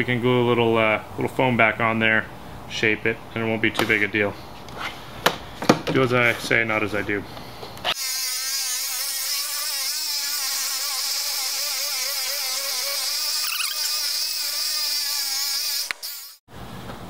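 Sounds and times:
electric knife buzzing through foam: 7.9s - 16.4s.

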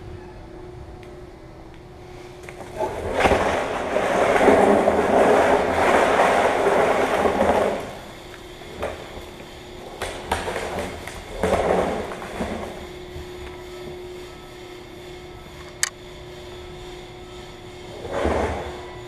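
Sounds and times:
faint steady hum: 0.0s - 19.0s
trash can dragged across concrete: 2.6s - 12.9s, 17.9s - 18.9s.

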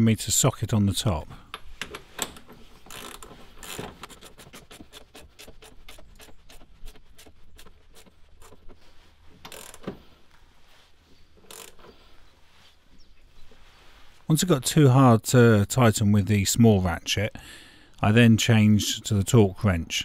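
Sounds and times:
hand ratchet clicking: 1.5s - 8.6s, 9.4s - 9.9s, 11.5s - 11.9s.

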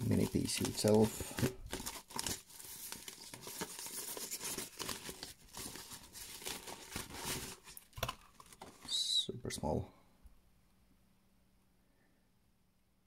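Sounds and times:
plastic wrapping crinkling: 0.0s - 8.9s.

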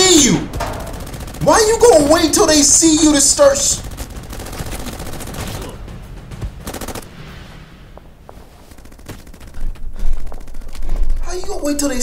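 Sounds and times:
machine-gun fire: 0.0s - 7.6s, 8.7s - 11.2s.

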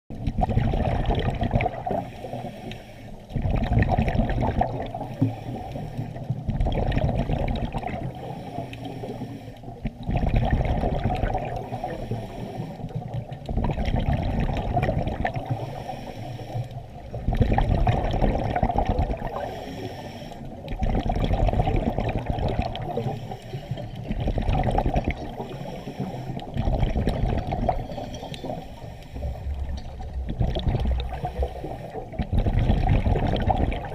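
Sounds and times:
underwater regulator bubbles gurgling: 0.1s - 33.9s.

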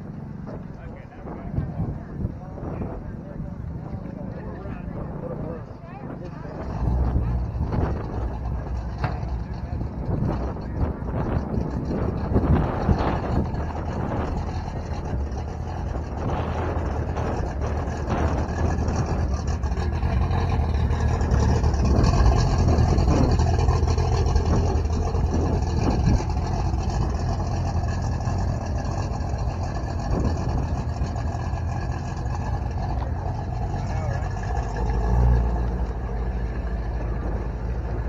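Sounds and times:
car engine running: 0.0s - 38.0s.

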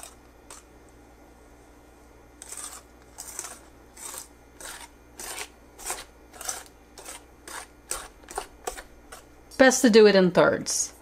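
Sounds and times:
whisk scraping in steel bowl: 0.0s - 0.6s, 2.4s - 9.3s.

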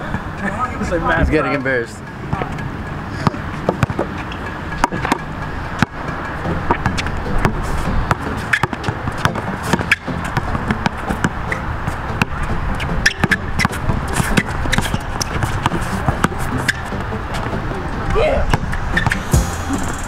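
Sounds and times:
rushing background noise: 0.0s - 20.0s
basketball bouncing on hard court: 3.2s - 4.1s, 6.7s - 11.4s.

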